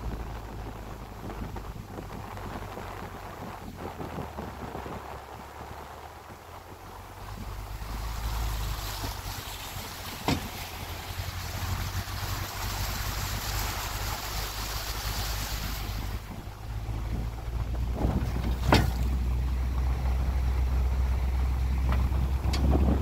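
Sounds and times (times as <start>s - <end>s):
vehicle rumbling on wet gravel: 0.0s - 23.0s
tyres splashing through water: 5.7s - 23.0s.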